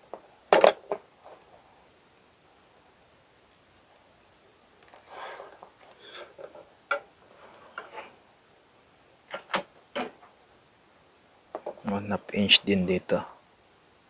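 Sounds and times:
ruler sliding on paper: 0:05.0 - 0:06.4.

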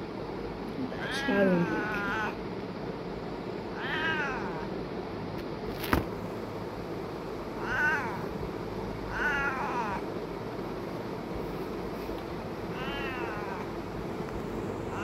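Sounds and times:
cat meowing: 0:00.9 - 0:02.4, 0:03.7 - 0:04.7, 0:07.6 - 0:08.3, 0:09.1 - 0:10.0, 0:12.7 - 0:13.7.

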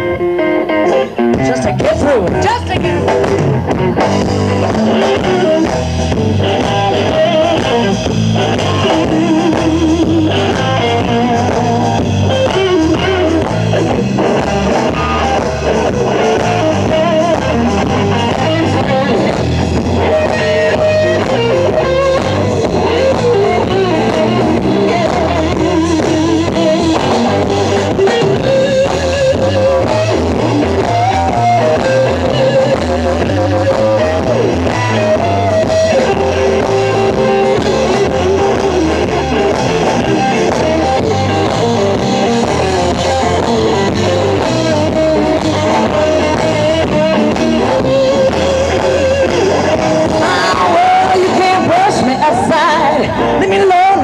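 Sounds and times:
blues-rock band playing: 0:00.0 - 0:54.0
lead electric guitar: 0:00.0 - 0:54.0
woman singing: 0:50.2 - 0:54.0.

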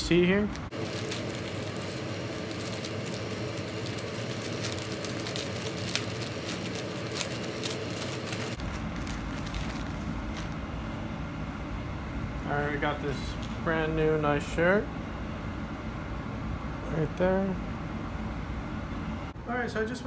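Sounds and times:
low background hum: 0:00.0 - 0:20.0
plastic mailer bag crinkling: 0:00.2 - 0:10.6.

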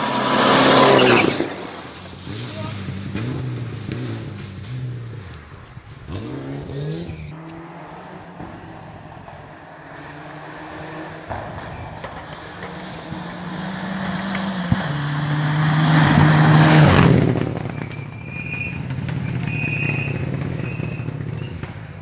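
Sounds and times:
gravel spraying: 0:00.0 - 0:10.1.

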